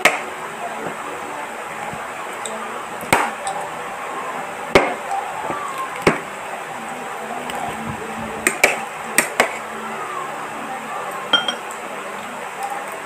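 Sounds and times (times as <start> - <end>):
cutlery clinking on plate: 11.3 - 11.7.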